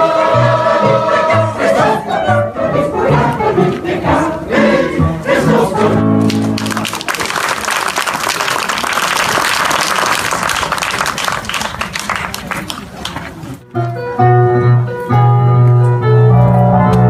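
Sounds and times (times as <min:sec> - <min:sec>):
mixed choir singing a hymn: 0:00.0 - 0:06.2
audience applause: 0:06.2 - 0:13.5.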